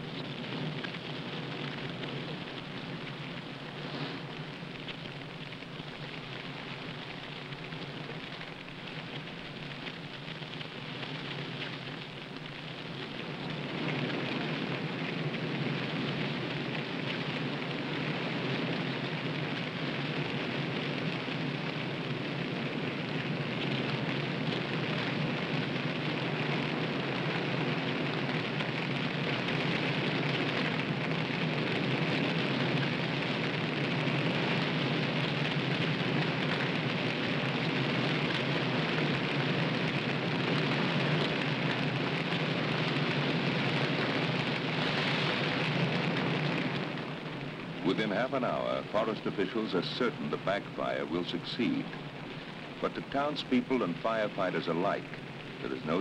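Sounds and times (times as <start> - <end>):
crackling flames in trees: 0.0 - 56.0.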